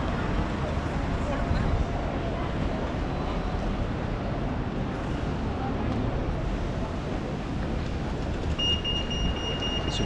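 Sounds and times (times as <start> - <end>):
city street traffic: 0.0 - 10.0
crossing signal high beep: 8.6 - 10.0.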